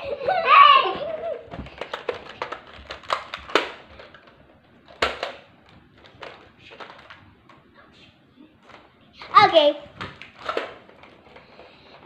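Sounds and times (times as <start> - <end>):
toys knocking and clicking: 4.9 - 5.4.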